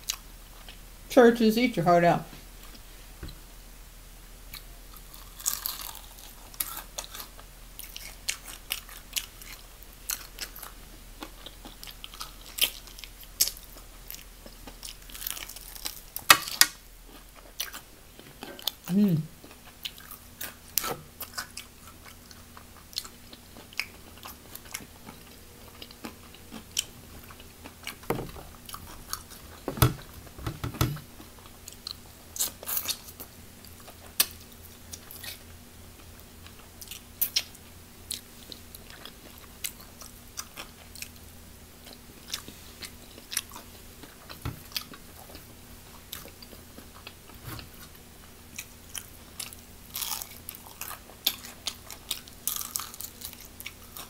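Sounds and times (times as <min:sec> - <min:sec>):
faint steady hum: 0:00.0 - 0:54.0
crunchy bites and chewing: 0:04.5 - 0:18.8, 0:41.8 - 0:54.0.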